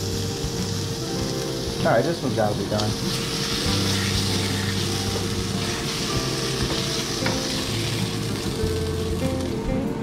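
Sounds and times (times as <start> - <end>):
fish sizzling in frying pan: 0.0 - 9.7.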